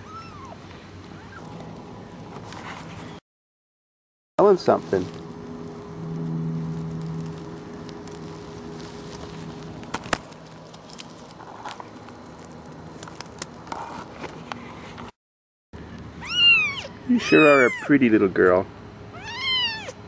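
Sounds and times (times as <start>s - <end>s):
low steady hum: 4.4s - 15.1s
kitten mewing: 16.2s - 17.9s, 19.1s - 20.0s.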